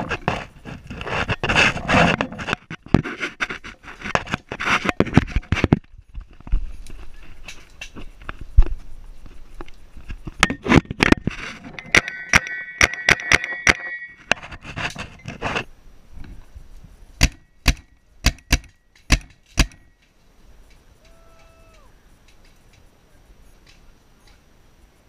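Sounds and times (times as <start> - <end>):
paintball marker shots: 17.2 - 19.9.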